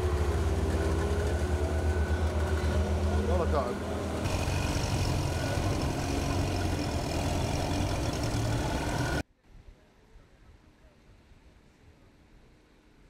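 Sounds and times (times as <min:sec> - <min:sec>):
engine low rumble: 0:00.0 - 0:09.2.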